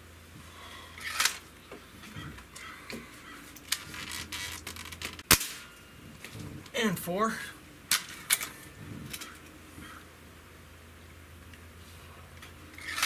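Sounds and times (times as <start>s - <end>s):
air rifle shot: 5.2s - 5.7s.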